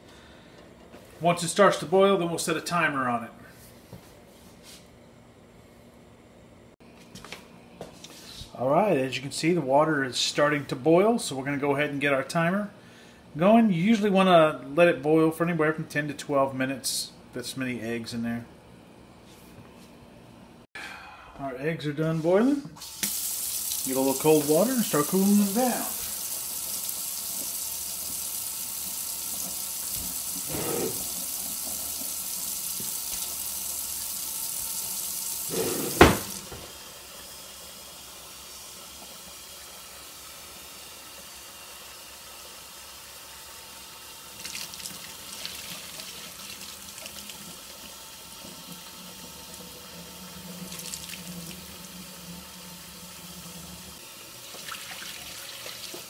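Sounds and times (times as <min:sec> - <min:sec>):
tap water splashing into sink: 0:54.4 - 0:56.0
water splashes being poured off: 0:54.5 - 0:56.0.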